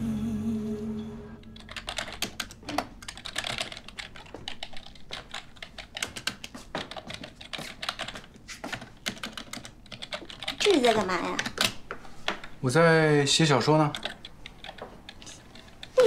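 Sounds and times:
background music: 0.0s - 1.8s
fast typing on keyboard: 1.6s - 11.8s, 13.5s - 16.0s.

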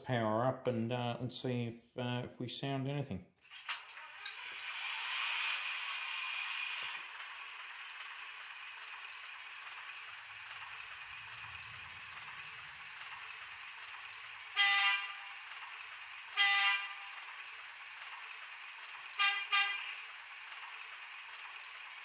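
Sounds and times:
diesel engine idling: 7.0s - 22.0s
short horn toots: 14.5s - 15.4s, 16.3s - 17.2s, 19.2s - 20.1s.

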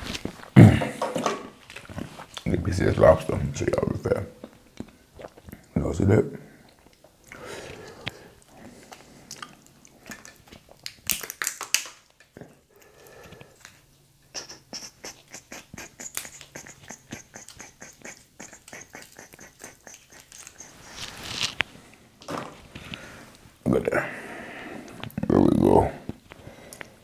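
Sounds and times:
lobster meat pulled apart by hand: 10.6s - 12.2s.

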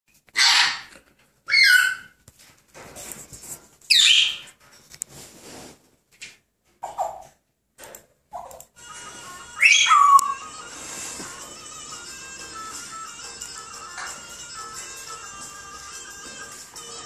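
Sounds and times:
parrot squawks: 0.3s - 2.2s, 3.9s - 4.5s, 8.3s - 10.6s
parrot chatter: 8.4s - 15.8s.

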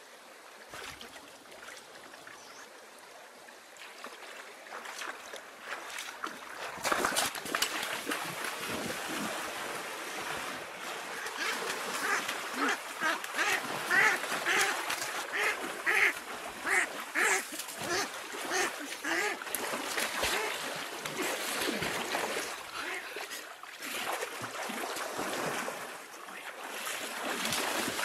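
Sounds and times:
water splashing: 0.7s - 2.6s, 3.7s - 28.0s
ducks quacking: 11.1s - 19.4s, 22.7s - 23.3s.

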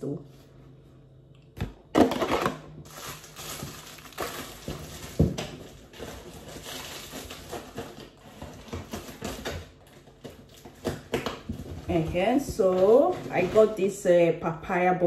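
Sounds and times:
packaging crinkling: 2.0s - 11.9s.

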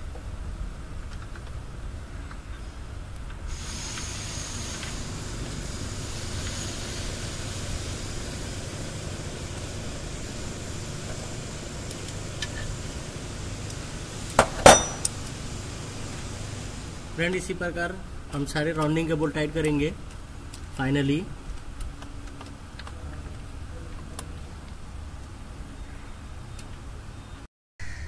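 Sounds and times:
steady hiss: 0.8s - 22.7s
sharp metallic clank: 14.4s - 15.2s.

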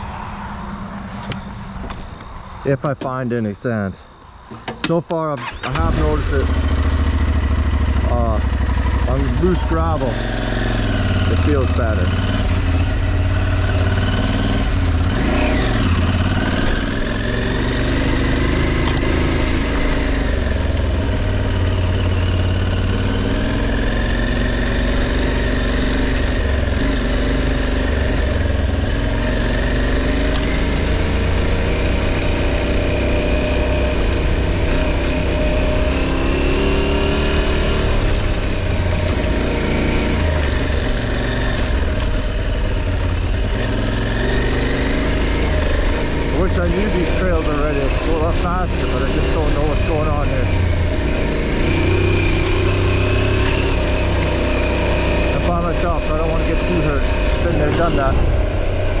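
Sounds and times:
motorcycle engine revving: 4.5s - 59.0s
steady low rumble: 56.0s - 59.0s.

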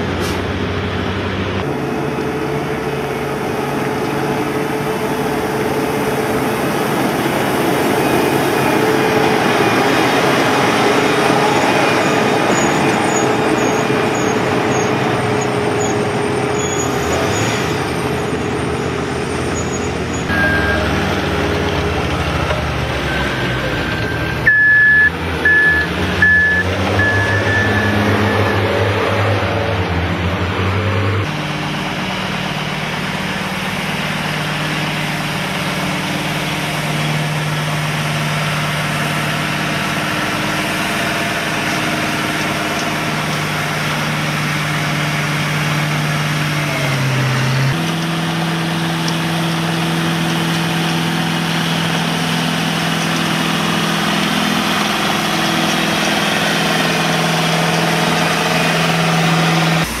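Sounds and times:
heavy diesel engines running: 0.0s - 60.0s.

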